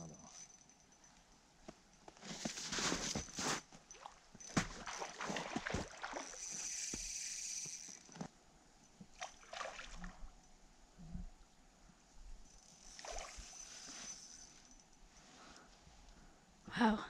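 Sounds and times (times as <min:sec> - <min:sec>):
water splashing and sloshing: 0:02.9 - 0:06.7, 0:09.1 - 0:10.3, 0:12.8 - 0:14.2.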